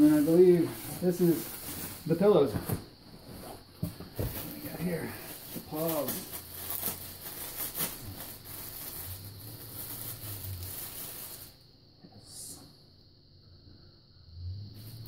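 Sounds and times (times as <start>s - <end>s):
packaging rustling: 0.0s - 11.6s.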